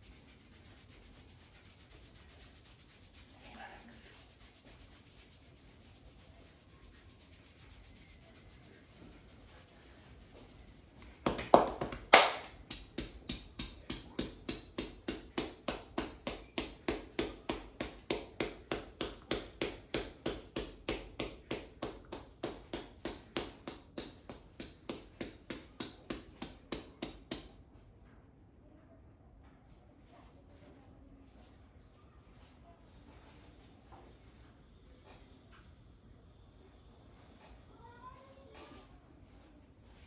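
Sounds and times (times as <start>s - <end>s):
hands tapping on scalp: 10.4s - 27.6s.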